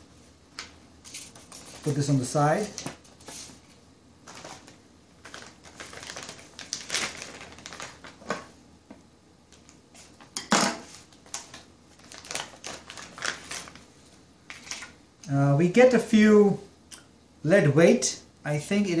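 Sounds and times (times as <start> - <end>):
plastic bags crinkling: 4.2 - 8.5, 11.0 - 13.8, 14.5 - 15.0.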